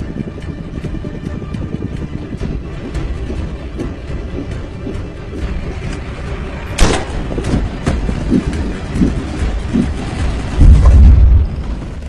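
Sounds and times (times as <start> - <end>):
dramatic score rumble: 0.0 - 12.0
heavy low boom: 10.4 - 11.8.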